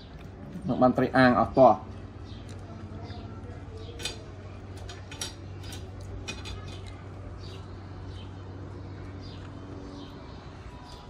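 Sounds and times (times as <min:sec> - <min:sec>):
steady low hum: 0:00.0 - 0:11.0
clinks of eating from a plate: 0:03.8 - 0:07.1.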